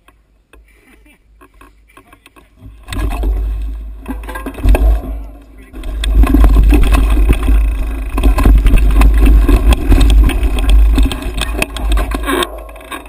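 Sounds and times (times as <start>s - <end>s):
bike rattling on rough trail: 1.5s - 13.0s
wind rumble on microphone: 4.6s - 13.0s.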